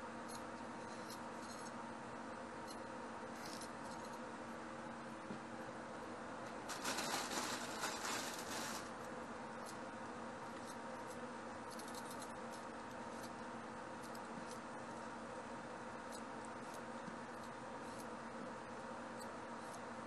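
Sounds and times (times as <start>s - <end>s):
faint steady hum: 0.0s - 20.0s
crackly rustle: 6.5s - 9.2s.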